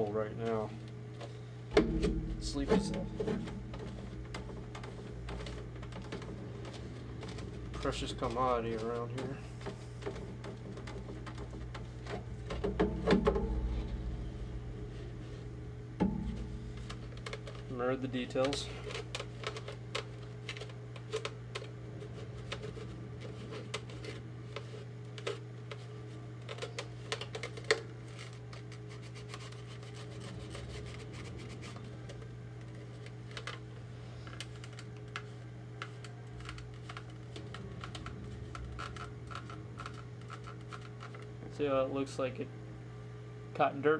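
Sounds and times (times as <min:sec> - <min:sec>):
steady low hum: 0:00.0 - 0:43.9
sharp knock: 0:01.7 - 0:04.2.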